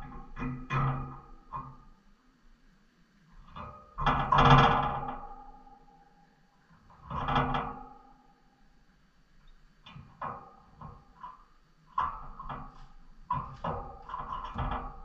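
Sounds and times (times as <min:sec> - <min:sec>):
knocks and rattles of birdcage: 0:00.0 - 0:01.9, 0:03.4 - 0:05.8, 0:06.8 - 0:08.2, 0:09.8 - 0:15.0.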